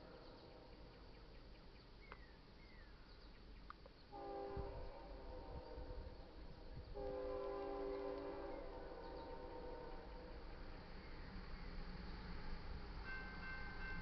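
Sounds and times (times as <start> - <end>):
faint bird chirps: 0.0 - 4.2
locomotive air horn blast: 4.1 - 10.3.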